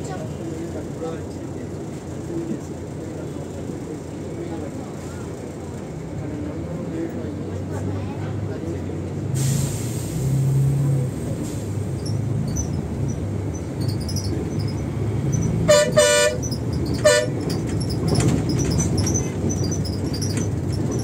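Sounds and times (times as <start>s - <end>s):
bus engine rumble: 0.0s - 21.0s
vehicle horn tooting: 15.6s - 17.4s.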